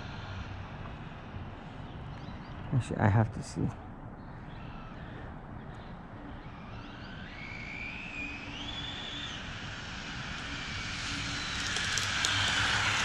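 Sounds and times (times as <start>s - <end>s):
electric motor whining: 6.3s - 13.0s.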